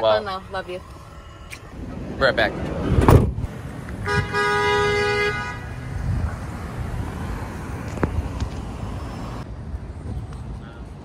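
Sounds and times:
street traffic rumble: 0.0s - 11.0s
wind buffeting microphone: 1.5s - 4.4s, 5.7s - 8.8s
car horn: 4.0s - 6.1s.

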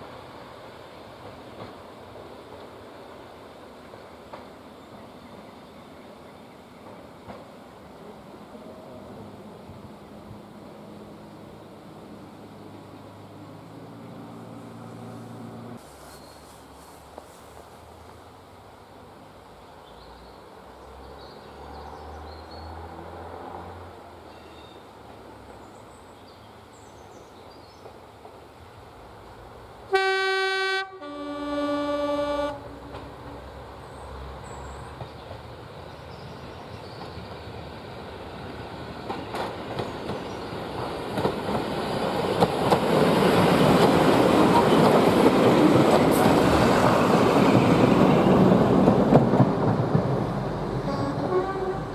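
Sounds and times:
train engines and wheels passing: 0.0s - 51.9s
two-tone train horn: 29.9s - 32.9s, 50.8s - 51.9s.

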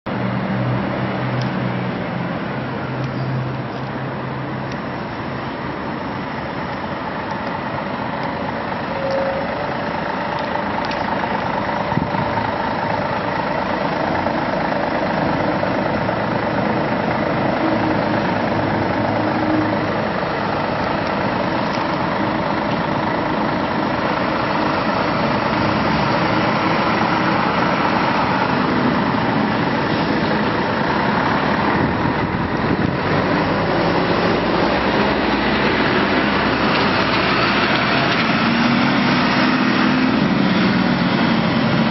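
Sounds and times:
bus diesel engine idling: 0.1s - 41.9s.

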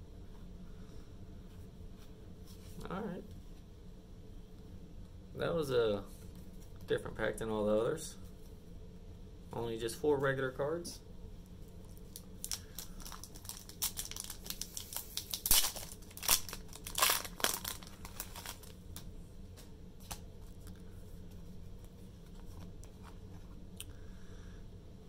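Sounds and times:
foil wrapper crinkling and tearing: 12.0s - 18.8s.

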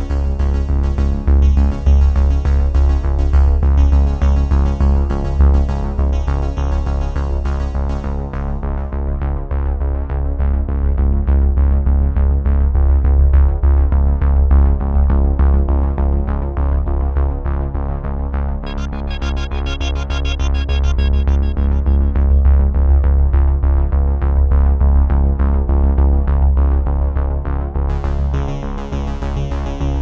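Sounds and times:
electronic music with synth bass: 0.0s - 8.7s, 18.6s - 24.3s, 27.9s - 30.0s.

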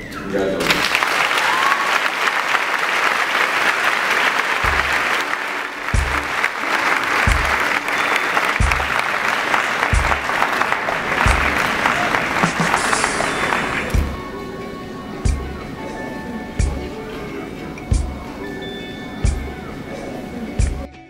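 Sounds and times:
audience applauding: 0.6s - 14.4s
low bass beat: 4.7s - 5.0s, 6.0s - 6.4s, 7.3s - 7.7s, 8.6s - 9.0s, 9.9s - 10.3s, 11.2s - 11.7s, 13.9s - 14.4s, 15.3s - 15.7s, 16.6s - 17.0s, 17.9s - 18.4s, 19.2s - 19.6s, 20.6s - 20.9s.

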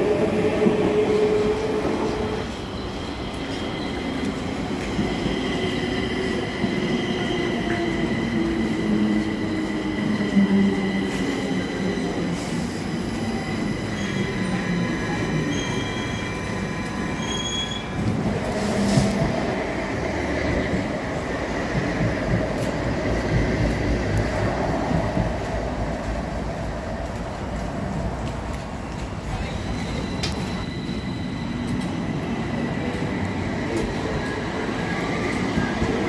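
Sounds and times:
tram passing: 0.0s - 36.0s
train wheels squealing: 1.5s - 19.2s, 29.3s - 36.0s.

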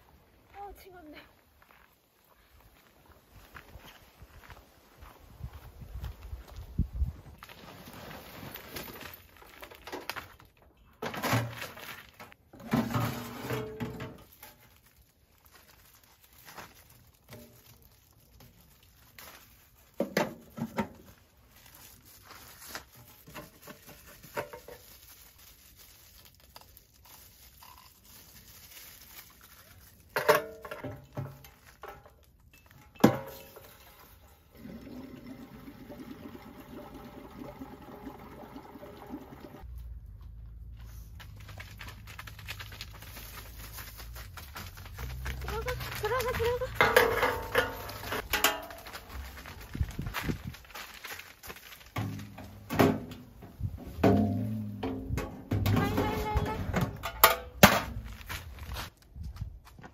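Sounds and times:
clatter and rustling of handling: 7.4s - 34.3s, 40.2s - 59.0s.

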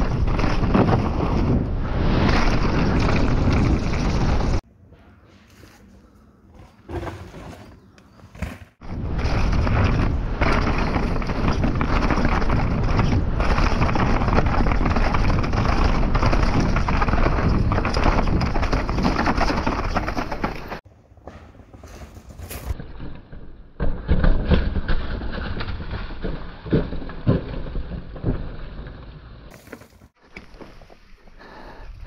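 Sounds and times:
wind and tyre noise: 0.0s - 32.0s
bike frame and wheel rattle: 8.4s - 30.9s.

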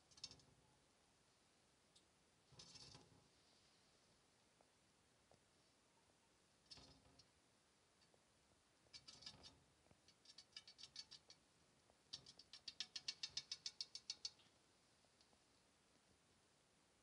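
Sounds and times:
claws tapping on glass: 8.9s - 11.4s, 12.1s - 14.5s.

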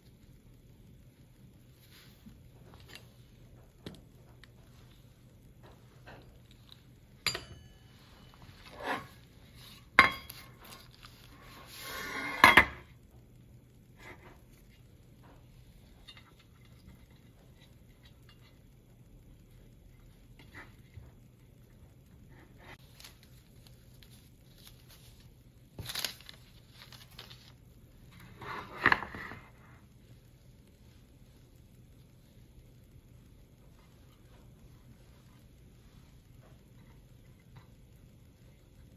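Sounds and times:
paper rustle: 22.8s - 29.5s.

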